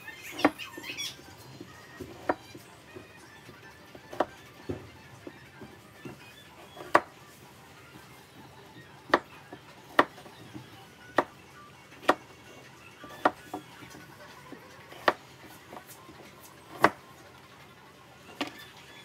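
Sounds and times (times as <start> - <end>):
cleaver chopping on cutting board: 2.0 - 2.4, 4.0 - 5.4, 6.8 - 7.1, 9.9 - 10.3, 13.0 - 13.4, 14.9 - 15.2, 16.7 - 17.0.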